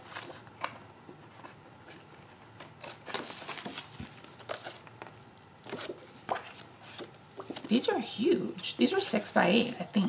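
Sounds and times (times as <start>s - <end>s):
cardstock sheets rustling: 1.3s - 8.0s.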